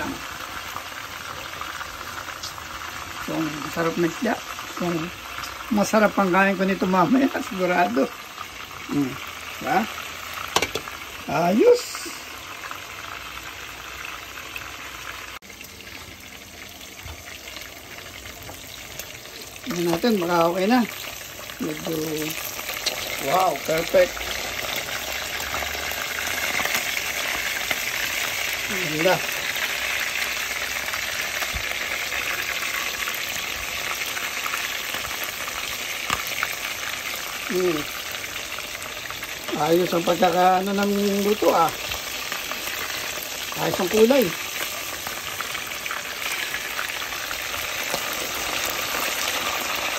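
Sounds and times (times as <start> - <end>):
fish frying in oil: 0.0 - 49.9.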